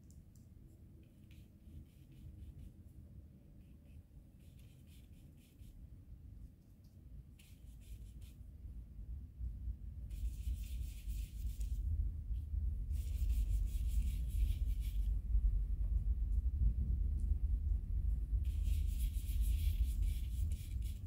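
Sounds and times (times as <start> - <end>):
paintbrush scratching on paper: 0.7 - 3.0, 3.6 - 5.8, 7.4 - 8.4, 10.1 - 11.9, 12.9 - 15.1, 18.5 - 21.0
low rumble: 8.5 - 21.0.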